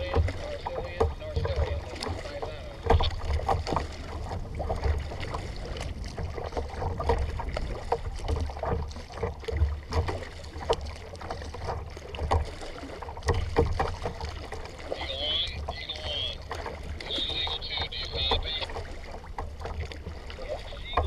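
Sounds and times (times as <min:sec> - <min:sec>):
paddle splashing in water: 0:00.0 - 0:21.0
water lapping at hull: 0:00.0 - 0:21.0.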